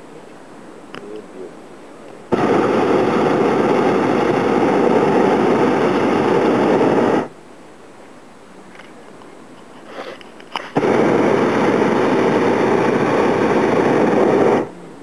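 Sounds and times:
propane burner blast: 2.3 - 7.4, 9.8 - 14.7.

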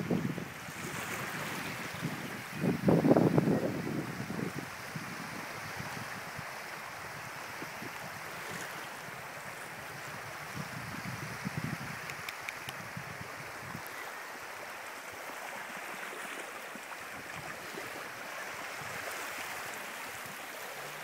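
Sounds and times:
small waves lapping on beach: 0.0 - 21.0.

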